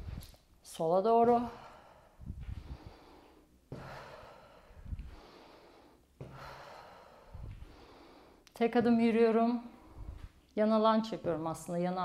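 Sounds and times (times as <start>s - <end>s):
dull low thumps: 0.0s - 0.3s, 2.2s - 3.0s, 4.7s - 5.2s, 7.3s - 7.8s, 9.8s - 10.4s
woman breathing hard: 1.5s - 8.4s.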